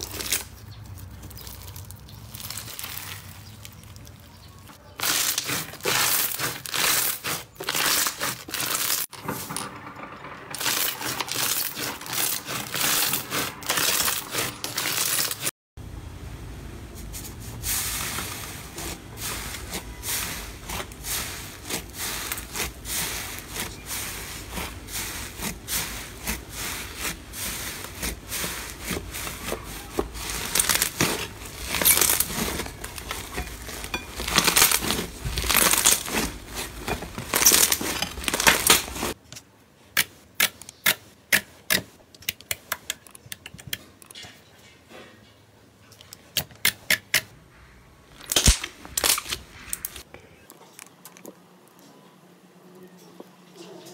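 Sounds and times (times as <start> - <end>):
crunchy slime crackling and popping: 0.0 - 9.1, 10.6 - 15.5, 20.6 - 39.2, 48.1 - 50.0.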